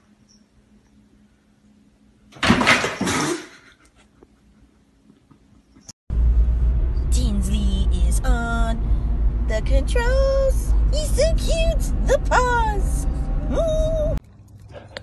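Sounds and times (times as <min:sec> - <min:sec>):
car engine rumbling: 0:06.1 - 0:14.2.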